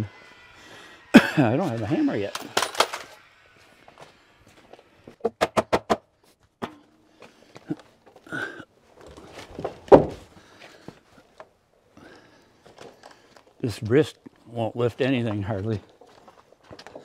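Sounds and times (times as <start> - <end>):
sharp knocks on wood framing: 5.2 - 6.0, 9.9 - 10.2
heavy wooden thump: 9.8 - 10.3.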